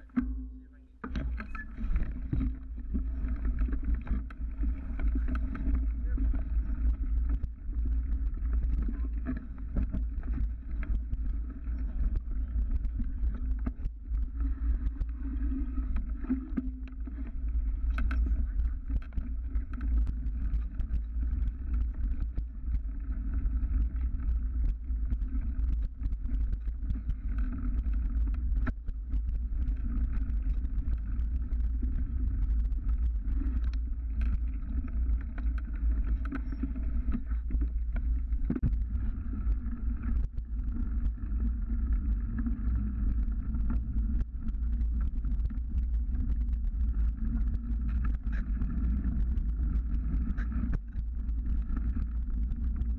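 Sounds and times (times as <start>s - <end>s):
wind and tyres rumbling: 0.0s - 52.9s.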